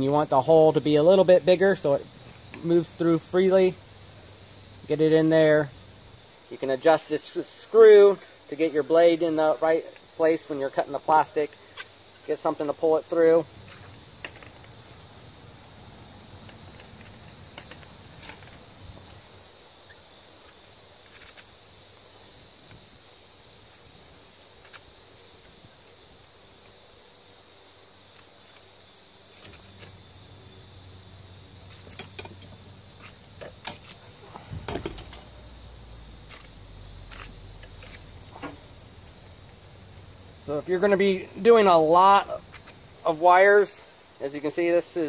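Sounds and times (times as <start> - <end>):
high insect buzz: 0.0 - 45.0
wire stripper clicks and scrapes: 29.3 - 30.0, 31.6 - 35.3, 36.2 - 39.2.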